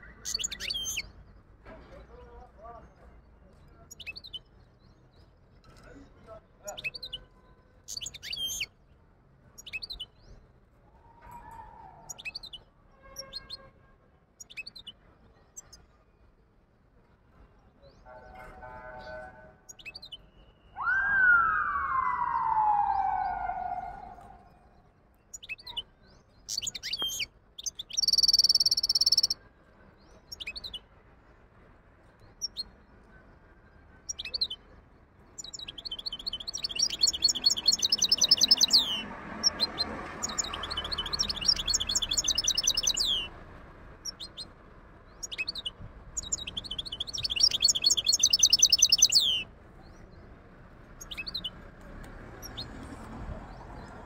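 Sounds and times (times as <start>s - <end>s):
finch chirping and trilling: 0.0s - 1.1s, 3.8s - 4.5s, 7.8s - 8.7s, 9.6s - 10.1s, 11.9s - 12.6s, 14.4s - 15.0s, 25.3s - 29.4s, 35.3s - 43.3s, 44.0s - 44.5s, 45.1s - 49.5s, 51.0s - 51.6s.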